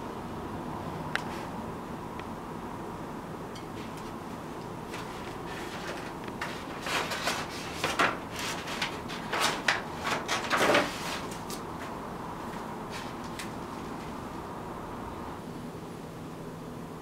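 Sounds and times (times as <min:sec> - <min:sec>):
paper rustling and crinkling: 0:04.8 - 0:14.2.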